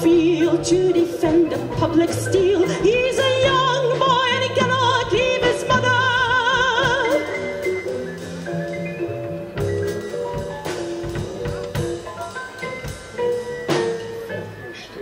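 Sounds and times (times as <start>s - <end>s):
woman singing with vibrato: 0.0s - 7.4s
keyboard and cello playing: 0.0s - 15.0s.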